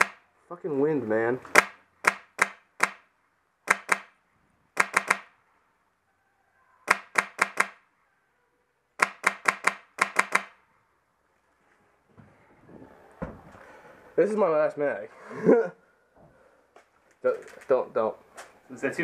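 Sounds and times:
airsoft rifle shots: 0.0 - 0.2, 1.5 - 4.2, 4.8 - 5.4, 6.9 - 7.8, 9.0 - 10.6.

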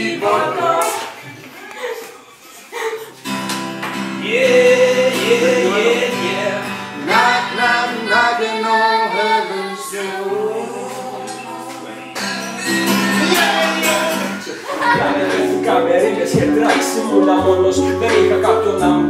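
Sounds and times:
voices singing: 0.0 - 2.9, 4.1 - 19.0
acoustic guitar strumming: 3.1 - 9.2, 9.9 - 19.0.

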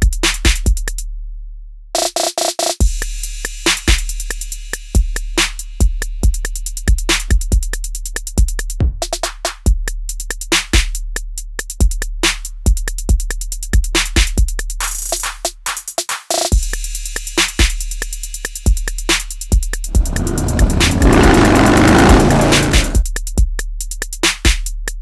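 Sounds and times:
deep sustained bass: 19.9 - 23.0.

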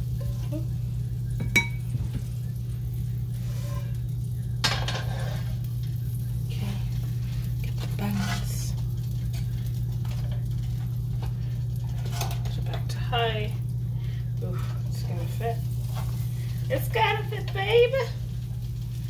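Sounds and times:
low hum: 0.0 - 19.0
frying pan clanking on burner: 4.6 - 5.5.

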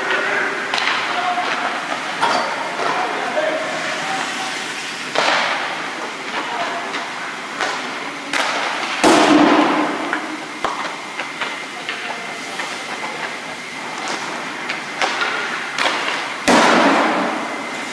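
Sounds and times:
sticks and pucks clacking: 0.0 - 3.1, 6.3 - 9.3, 14.0 - 16.3
hockey stick cracking puck: 15.0 - 17.3.

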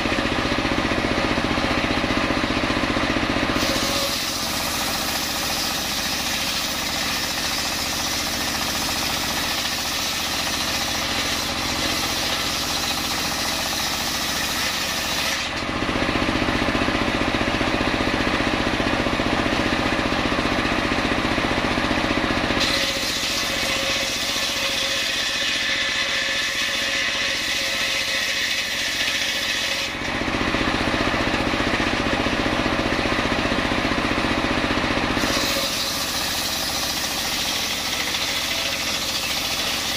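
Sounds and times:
circular saw cutting log: 0.0 - 39.9
saw blade spinning free: 3.5 - 15.6, 22.5 - 30.8, 35.1 - 39.9.

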